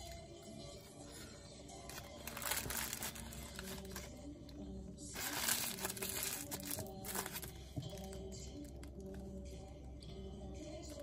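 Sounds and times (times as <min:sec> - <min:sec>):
paper napkin crumpling: 0:01.9 - 0:04.1, 0:05.2 - 0:07.5.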